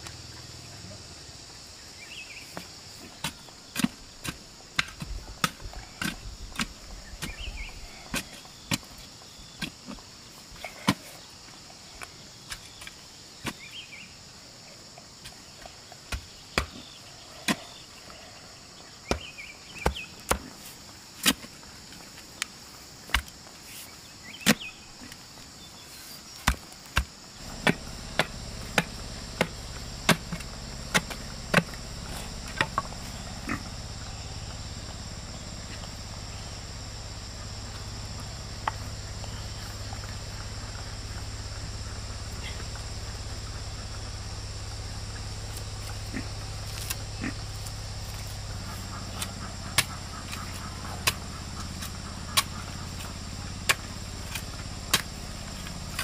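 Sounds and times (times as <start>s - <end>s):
insects shrilling: 0.0s - 56.0s
digging tool chopping soil: 3.1s - 9.0s, 19.0s - 21.6s, 22.4s - 23.4s, 24.3s - 25.2s, 26.4s - 33.7s, 49.0s - 56.0s
low steady rumble: 27.3s - 56.0s.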